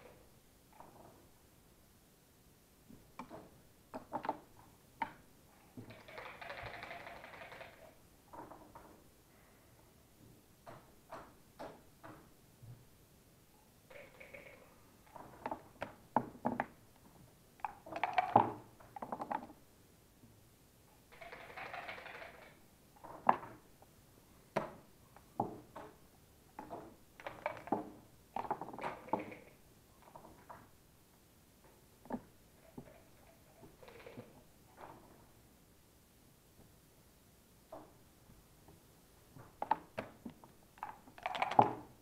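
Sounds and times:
checkers clicking on board: 0:05.9 - 0:07.9, 0:17.7 - 0:18.6, 0:21.1 - 0:22.6, 0:40.8 - 0:41.8.

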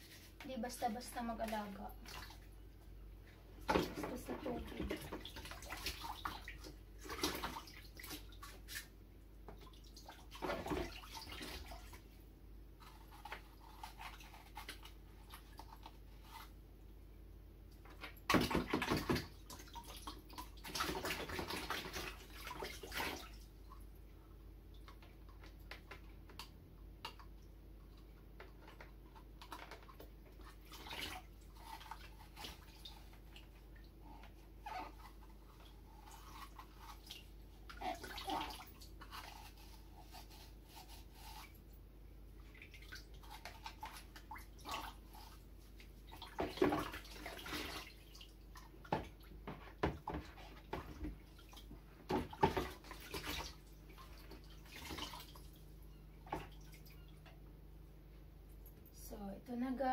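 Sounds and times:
water sloshing in plastic bucket: 0:00.1 - 0:02.6, 0:03.5 - 0:12.2, 0:17.8 - 0:23.9, 0:24.7 - 0:39.6, 0:42.4 - 0:57.4.

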